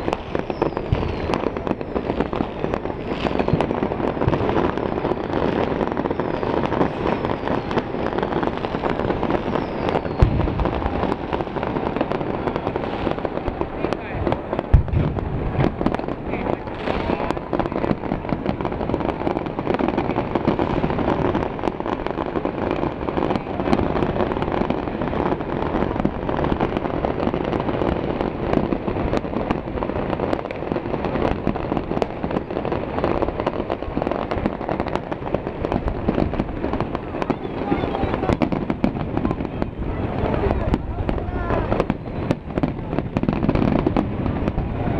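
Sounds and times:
fireworks bangs and crackles: 0:00.0 - 0:44.9.

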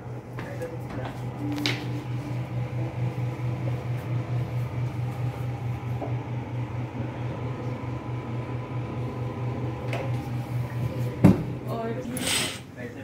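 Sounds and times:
ventilation machinery humming: 0:00.0 - 0:13.0.

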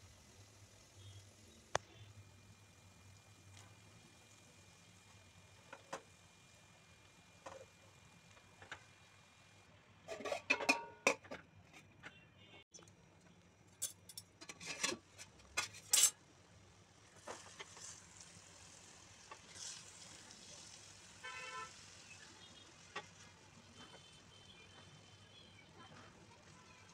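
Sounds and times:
light sizzle: 0:00.0 - 0:11.2, 0:12.8 - 0:26.9
utensils clattering on metal pan: 0:10.1 - 0:11.4, 0:13.8 - 0:15.0, 0:15.6 - 0:16.2
spatula stirring in pan: 0:17.0 - 0:25.0.

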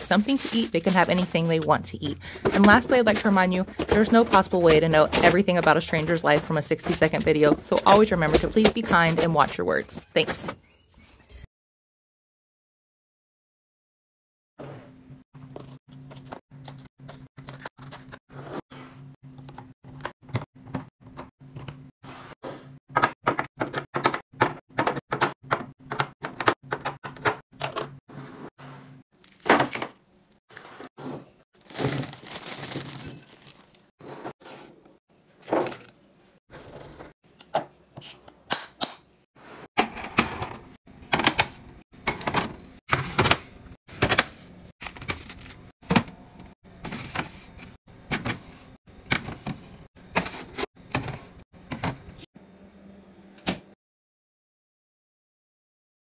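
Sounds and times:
plastic packages knocking and clicking: 0:31.6 - 0:33.9.

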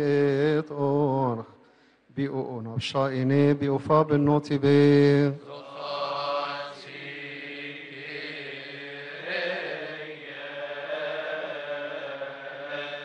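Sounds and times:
loud chanted line: 0:05.5 - 0:13.0
voices chanting: 0:05.5 - 0:13.0.

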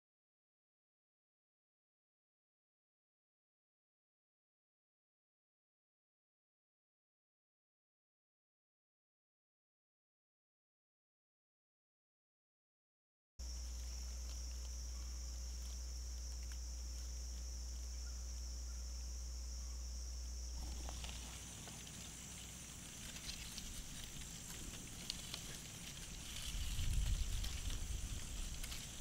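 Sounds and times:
high insect drone: 0:13.4 - 0:29.0
dog moving in dry corn stalks: 0:20.6 - 0:29.0.

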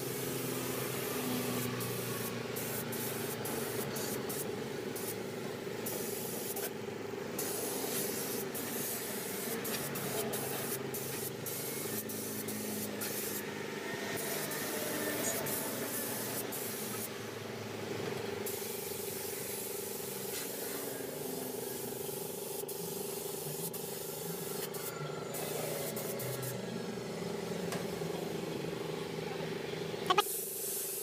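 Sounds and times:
paint spray gun hissing: 0:00.0 - 0:01.2, 0:01.8 - 0:05.2, 0:05.8 - 0:06.7, 0:07.4 - 0:13.4, 0:15.3 - 0:17.1, 0:18.4 - 0:24.8, 0:25.4 - 0:26.5, 0:30.1 - 0:31.0.

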